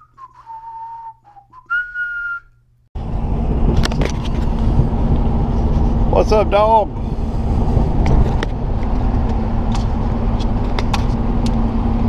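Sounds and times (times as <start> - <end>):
person whistling: 0.0 - 2.6
pickup truck rumble from inside cab: 3.0 - 12.0.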